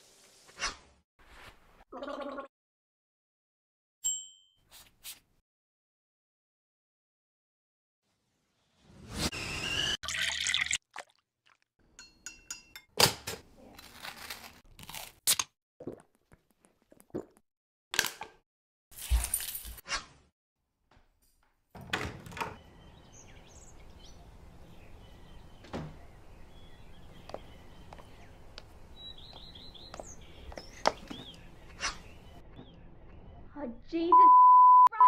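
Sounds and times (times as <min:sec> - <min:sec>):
liquid pouring: 0:10.0 - 0:11.6
outdoor background: 0:18.0 - 0:35.0.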